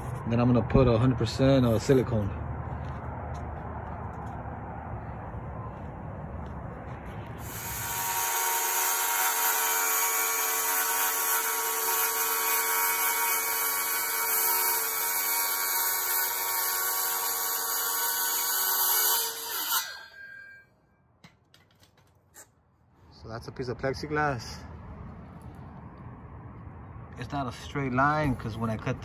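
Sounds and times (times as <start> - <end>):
circular saw cutting plastic: 7.4 - 20.6.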